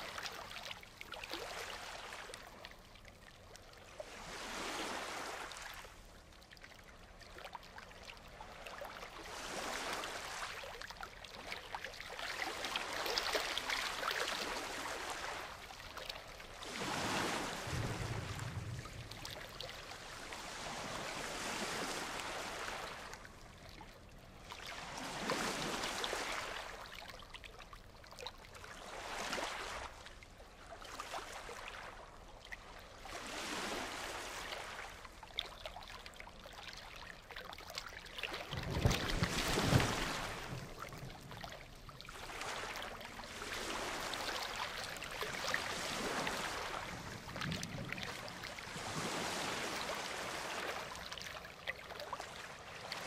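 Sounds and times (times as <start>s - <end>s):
waves breaking on beach: 0.0s - 2.6s, 4.0s - 6.0s, 8.4s - 23.6s, 24.3s - 26.9s, 28.6s - 35.2s, 38.0s - 53.0s.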